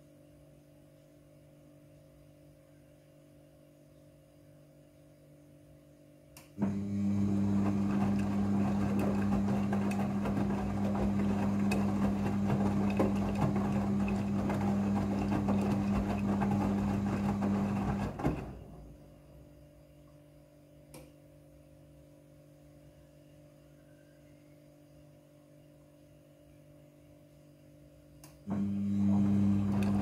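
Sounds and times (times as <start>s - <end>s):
washing machine motor hum: 6.5s - 20.2s, 28.4s - 30.0s
laundry thudding in drum: 7.6s - 18.8s.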